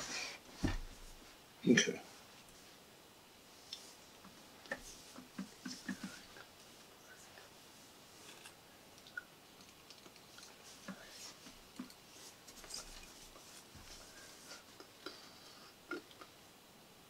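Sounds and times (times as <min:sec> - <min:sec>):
soft rustles: 0:00.0 - 0:08.6, 0:10.0 - 0:15.4.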